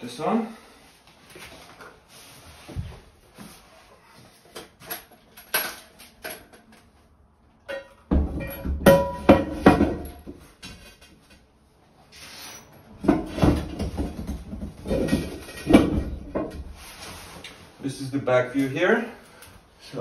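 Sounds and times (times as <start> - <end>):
heavy thuds and knocks: 13.0 - 16.8.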